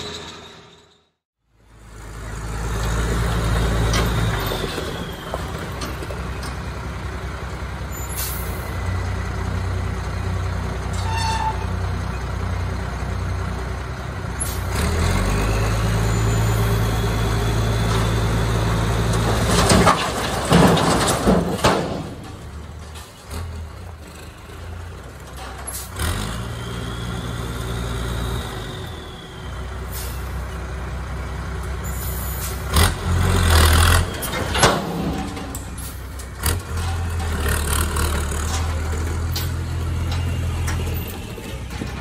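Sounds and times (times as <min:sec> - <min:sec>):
concrete slabs crashing down: 0:19.1 - 0:22.9.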